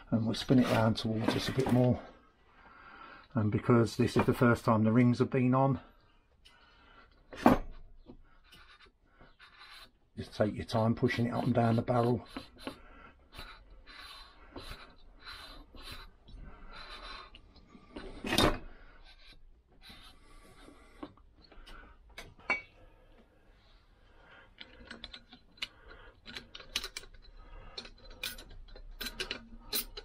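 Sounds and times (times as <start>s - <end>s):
metal sliding and scraping: 0.2s - 2.1s, 24.6s - 30.0s.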